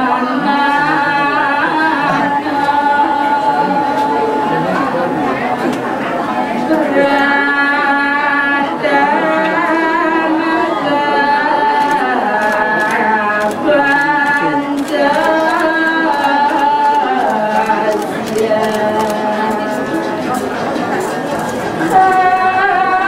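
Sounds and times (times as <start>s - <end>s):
person chanting long notes: 0.0s - 23.0s.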